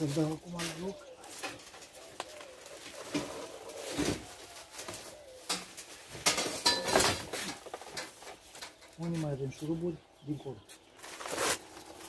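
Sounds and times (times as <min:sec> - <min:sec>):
pigeon cooing: 0:00.6 - 0:06.1
metal parts clinking and knocking: 0:06.2 - 0:08.1.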